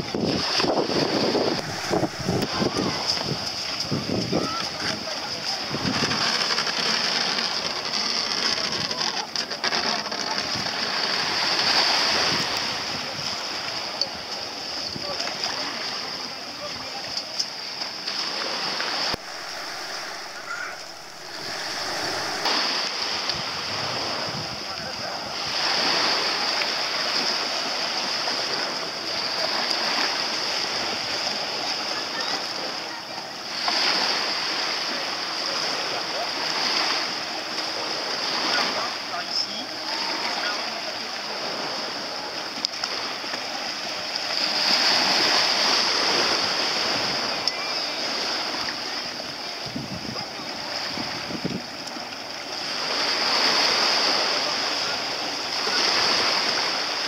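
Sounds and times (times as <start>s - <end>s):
seawater sloshing and splashing: 0.0s - 24.3s
sea water lapping at shore: 0.0s - 57.0s.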